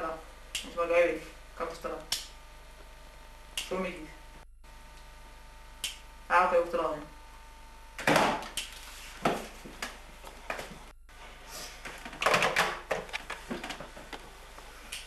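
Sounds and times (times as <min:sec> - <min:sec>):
plastic handsets knocking and clattering: 0:12.0 - 0:14.2.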